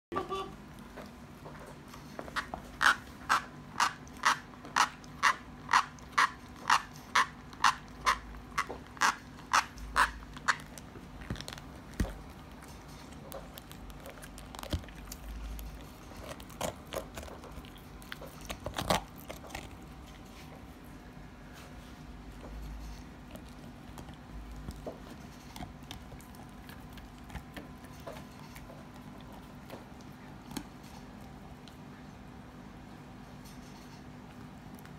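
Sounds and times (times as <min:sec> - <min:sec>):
dog gnawing squeaky chew: 0:01.8 - 0:20.7, 0:22.3 - 0:31.4.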